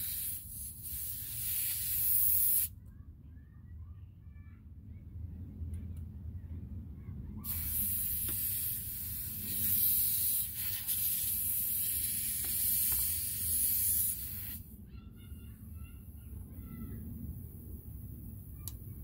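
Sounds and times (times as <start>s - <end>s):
air hissing from tyre valve: 0.0s - 2.7s, 7.4s - 14.8s.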